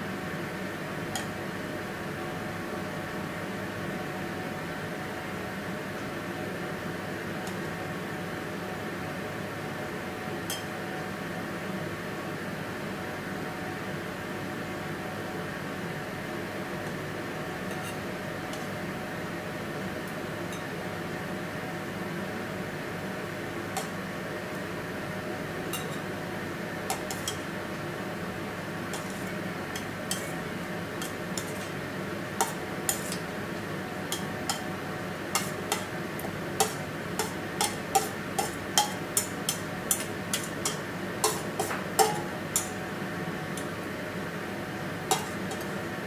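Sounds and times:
steady fan hum: 0:00.0 - 0:46.0
metal utensil clinking on steel bowl: 0:26.9 - 0:27.4, 0:35.4 - 0:35.9, 0:36.6 - 0:42.8, 0:45.1 - 0:45.7.

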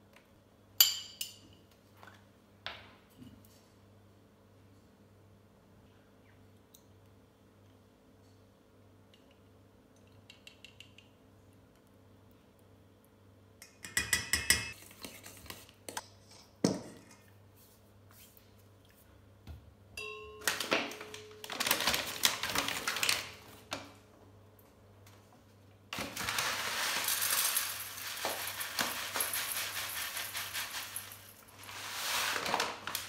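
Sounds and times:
paper bag rustling: 0:20.5 - 0:23.8, 0:26.0 - 0:33.0.

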